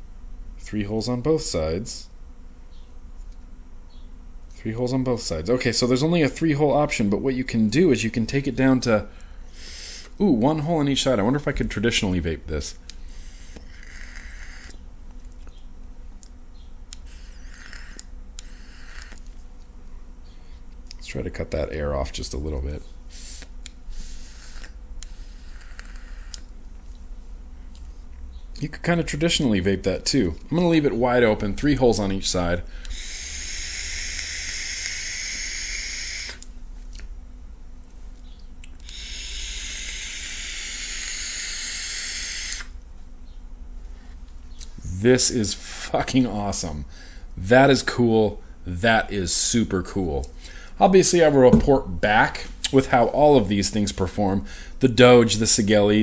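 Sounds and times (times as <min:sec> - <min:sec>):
air hissing through vape tank: 0:13.1 - 0:14.7, 0:17.1 - 0:19.2, 0:23.1 - 0:26.5, 0:32.8 - 0:36.4, 0:38.8 - 0:42.8.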